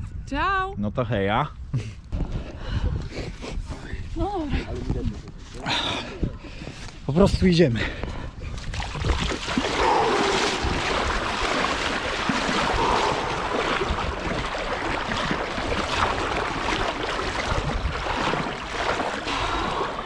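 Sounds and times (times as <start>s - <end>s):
lake water sloshing and splashing: 4.4s - 20.0s.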